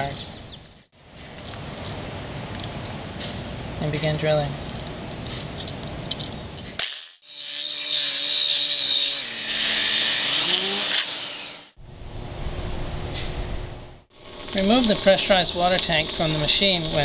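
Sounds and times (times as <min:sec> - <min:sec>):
core drill whining into tile: 0:07.2 - 0:11.8.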